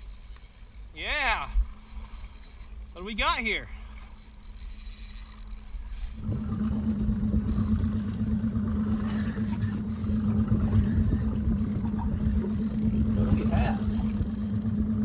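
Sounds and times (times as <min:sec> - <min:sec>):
boat motor humming: 0:00.0 - 0:15.0
wind rumble on microphone: 0:06.2 - 0:15.0.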